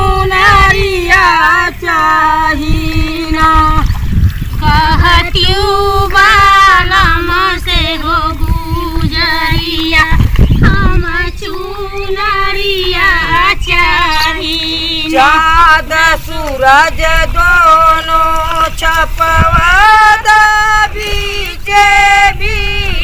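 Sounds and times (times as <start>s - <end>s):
women singing folk song: 0.0s - 23.0s.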